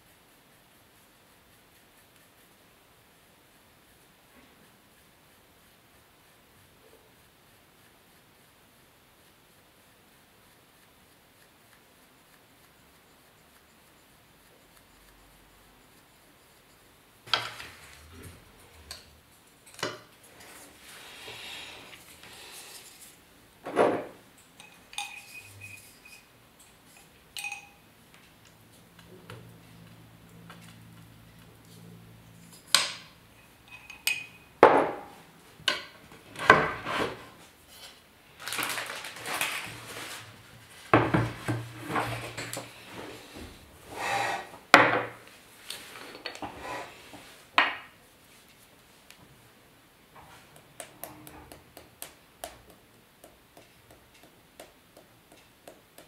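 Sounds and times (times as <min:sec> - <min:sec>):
scraping and rustling: 0:17.2 - 0:27.7, 0:36.0 - 0:49.1
tools knocking on table: 0:23.6 - 0:24.2, 0:34.6 - 0:37.1, 0:41.0 - 0:41.7.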